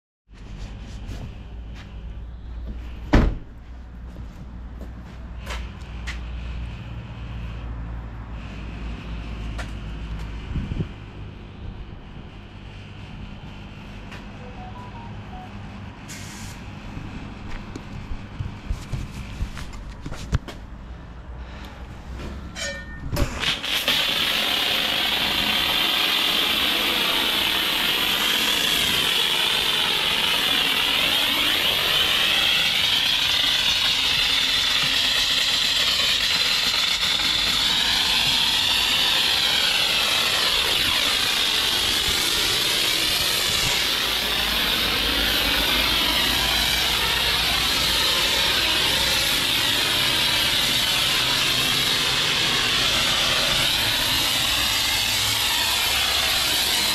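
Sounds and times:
pressure washer spray hissing: 0:23.4 - 0:56.9.

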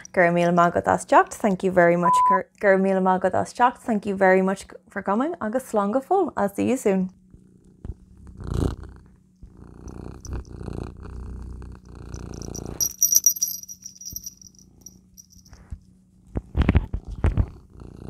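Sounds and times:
cat purring: 0:07.2 - 0:18.0
small bell jingling: 0:12.1 - 0:15.6.

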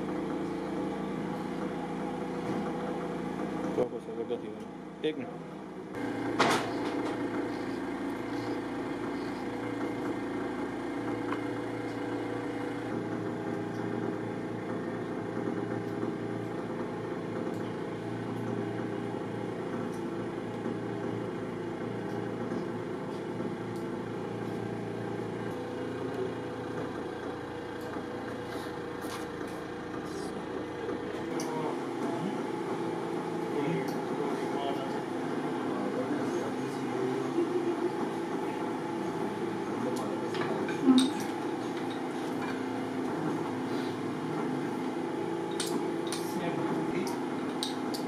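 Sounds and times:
machine hum: 0:00.0 - 0:48.0.

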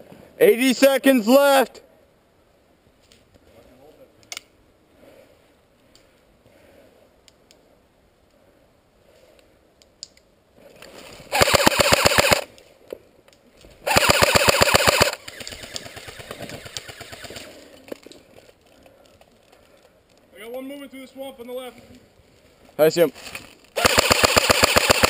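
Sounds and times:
airsoft gun full-auto bursts: 0:11.3 - 0:12.5, 0:13.8 - 0:17.5, 0:23.8 - 0:25.0.

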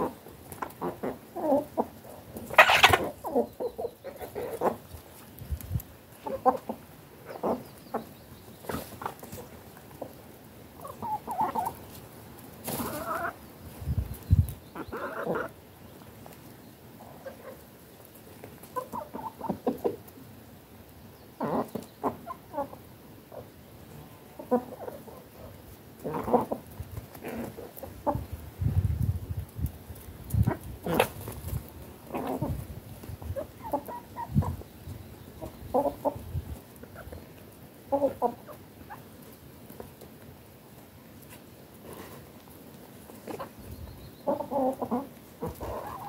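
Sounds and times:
chickens clucking: 0:00.0 - 0:46.0.

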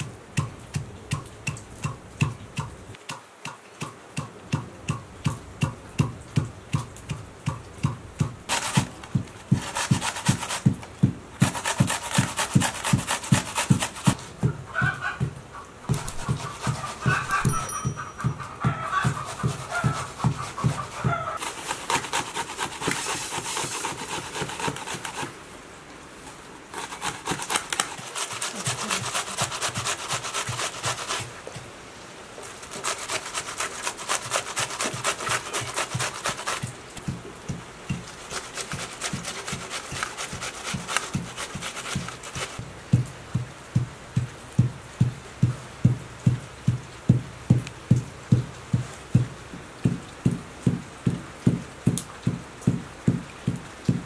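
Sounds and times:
onion grating on metal grater: 0:08.5 - 0:10.8, 0:11.4 - 0:14.2, 0:15.9 - 0:25.3, 0:26.8 - 0:31.3, 0:32.6 - 0:36.7, 0:38.1 - 0:42.6.

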